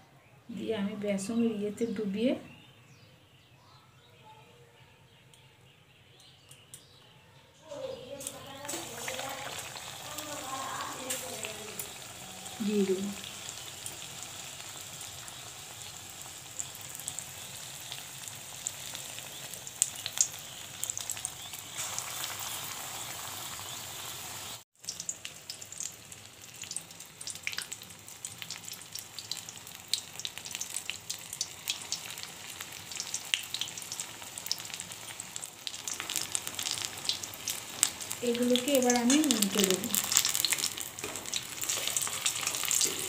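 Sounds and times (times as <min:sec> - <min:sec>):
food deep-frying in hot oil: 0:07.7 - 0:43.0.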